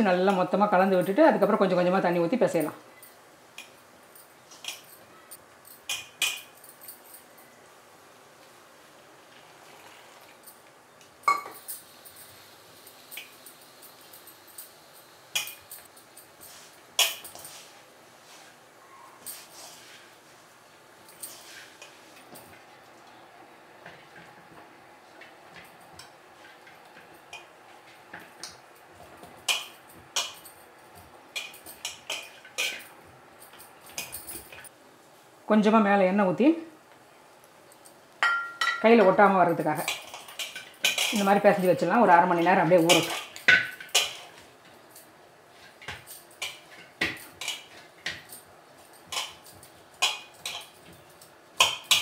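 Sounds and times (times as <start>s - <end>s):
bangles clinking: 2.6s - 7.6s, 29.4s - 34.7s
metallic clinks of steel bowl: 13.1s - 16.2s.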